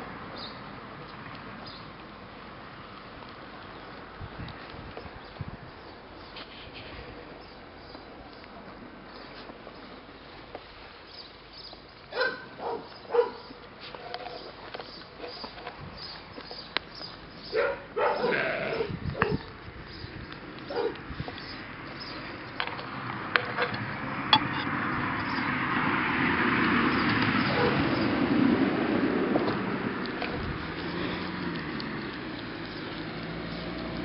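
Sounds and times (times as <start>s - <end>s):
puppies yipping: 12.1s - 14.6s, 17.5s - 19.5s, 20.7s - 21.0s, 27.4s - 28.0s.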